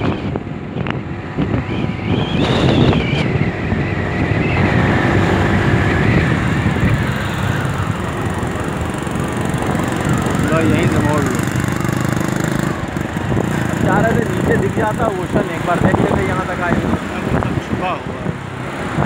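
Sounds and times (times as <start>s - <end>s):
wind buffeting microphone: 0.0s - 19.0s
scooter engine running: 4.6s - 16.3s.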